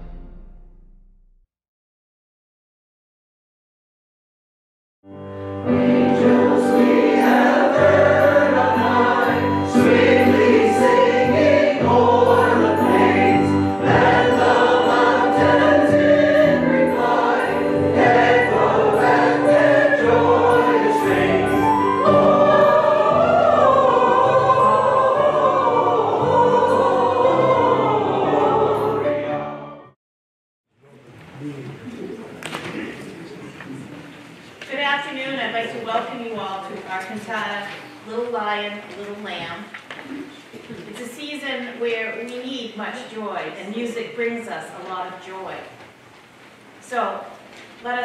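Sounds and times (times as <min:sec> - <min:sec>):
choir singing: 0:05.6 - 0:30.0.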